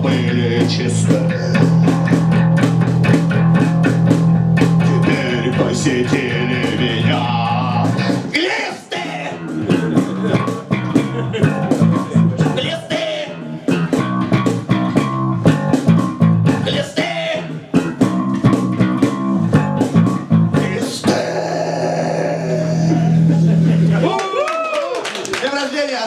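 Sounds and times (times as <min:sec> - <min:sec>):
man singing: 0:00.0 - 0:02.4, 0:04.6 - 0:13.7, 0:16.6 - 0:17.7, 0:20.5 - 0:23.4
electric bass guitar: 0:00.0 - 0:08.4, 0:09.0 - 0:24.1
drums: 0:00.0 - 0:25.2.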